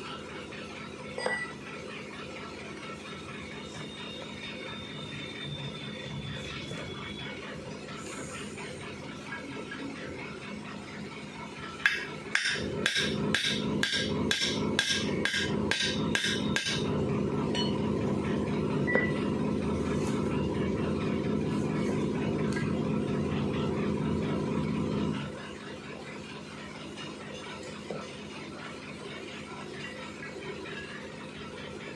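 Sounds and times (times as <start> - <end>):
steady mechanical hum: 0.0 - 31.9.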